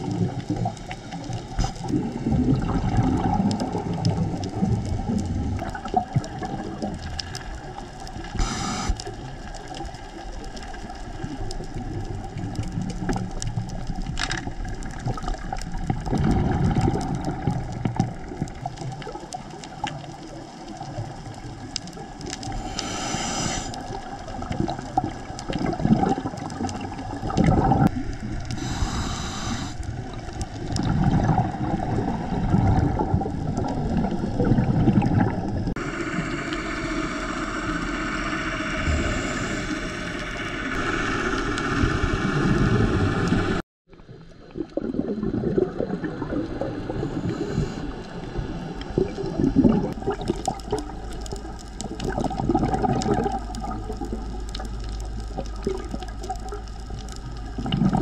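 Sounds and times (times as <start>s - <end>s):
low underwater rumble: 0.0s - 58.0s
underwater bubbling and gurgling: 0.0s - 58.0s
short hisses: 8.4s - 9.0s, 22.6s - 23.8s.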